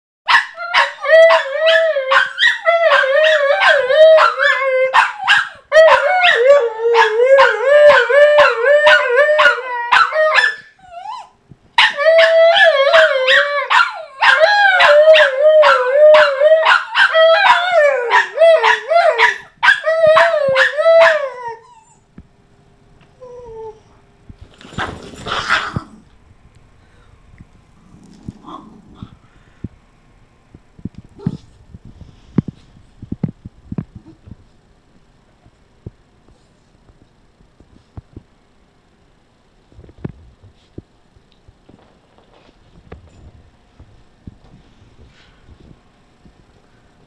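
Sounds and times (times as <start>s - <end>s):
dog whining and howling: 0.3s - 22.0s, 23.2s - 23.9s.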